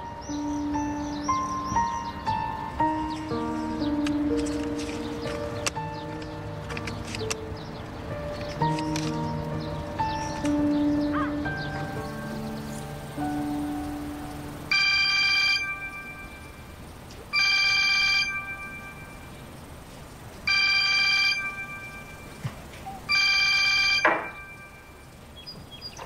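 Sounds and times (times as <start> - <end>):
phone ringtone: 14.7 - 19.4, 20.5 - 22.5, 23.1 - 25.2.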